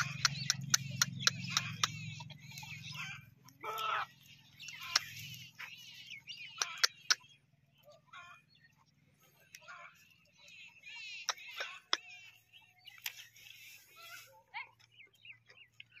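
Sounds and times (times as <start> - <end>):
sharp clicks: 0.0 - 2.3, 6.4 - 7.2
small birds chirping: 0.0 - 16.0.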